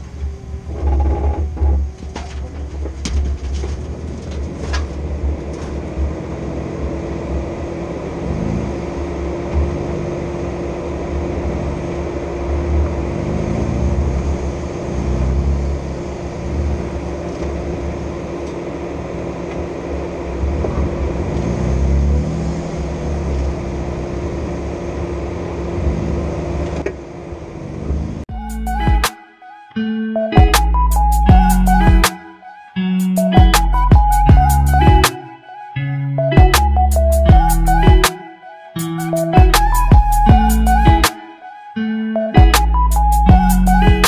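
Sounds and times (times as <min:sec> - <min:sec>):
off-road vehicle engine revving: 0:04.9 - 0:28.3.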